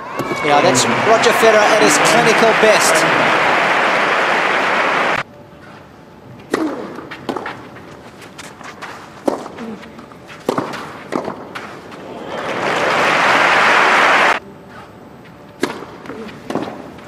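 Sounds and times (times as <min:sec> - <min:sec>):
crowd applauding: 0:00.4 - 0:05.2, 0:12.0 - 0:14.4
racket striking tennis ball: 0:10.4 - 0:11.7, 0:15.6 - 0:16.8.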